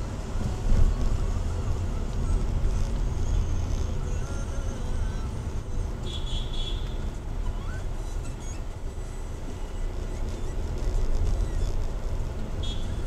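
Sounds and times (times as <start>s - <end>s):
engine and road rumble: 0.0s - 13.0s.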